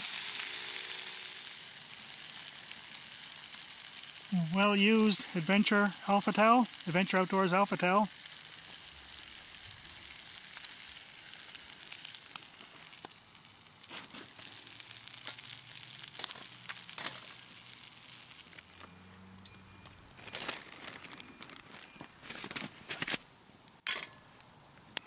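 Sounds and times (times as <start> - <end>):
meat sizzling in a skillet: 0.0 - 19.3
rustling crunching noises: 4.2 - 18.9, 19.9 - 25.0.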